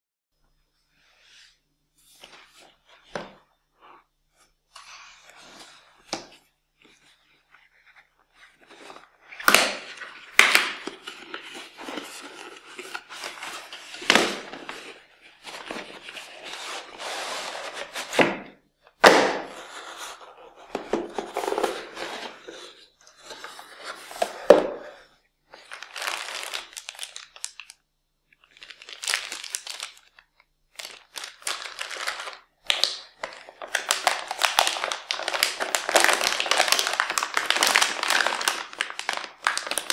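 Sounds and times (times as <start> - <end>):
plastic bag crinkling: 25.6 - 27.8, 28.4 - 39.9.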